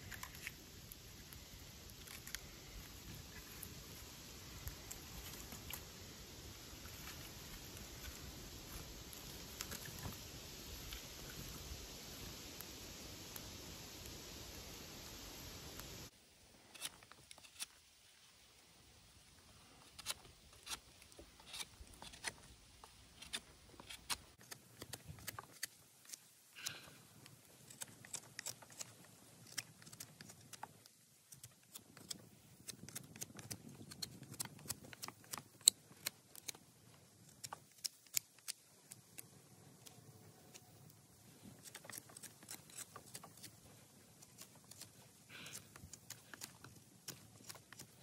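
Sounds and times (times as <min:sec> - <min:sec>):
knife scraping wood: 0:16.7 - 0:17.8, 0:19.8 - 0:22.5, 0:23.1 - 0:26.8, 0:39.8 - 0:48.0.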